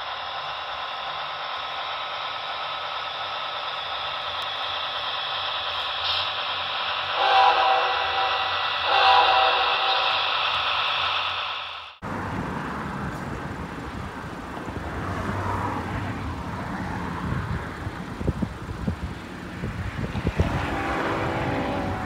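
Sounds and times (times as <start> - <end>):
model locomotive engine hum: 0.0 - 22.0
locomotive horn blasts: 7.2 - 10.0, 20.3 - 22.0.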